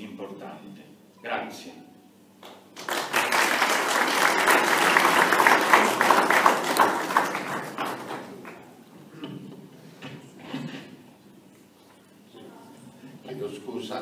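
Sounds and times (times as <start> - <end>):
audience applauding: 2.8 - 8.7.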